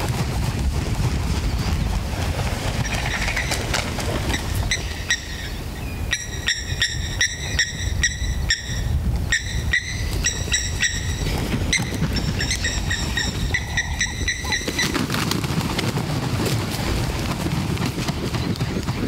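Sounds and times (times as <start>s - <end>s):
high-pitched animal chirps: 6.1s - 14.9s.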